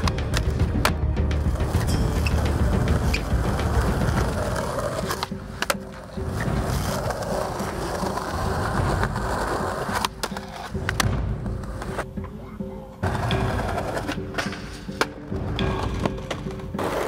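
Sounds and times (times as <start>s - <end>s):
skateboard clacks: 0.0s - 12.2s
skateboard wheels rolling on concrete: 0.0s - 12.4s, 13.0s - 17.0s.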